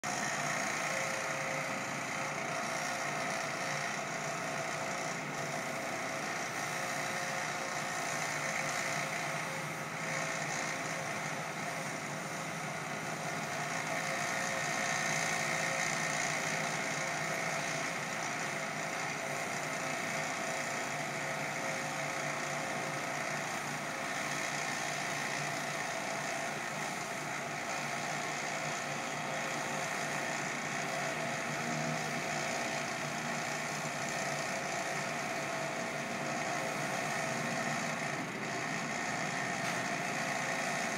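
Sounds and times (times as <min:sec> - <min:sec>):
power washer running: 0:08.6 - 0:40.9.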